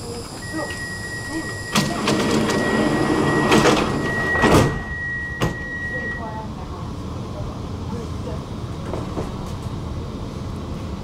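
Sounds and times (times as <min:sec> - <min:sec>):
high warning tone: 0:00.0 - 0:06.4
sliding doors knocking and rattling: 0:01.8 - 0:04.8.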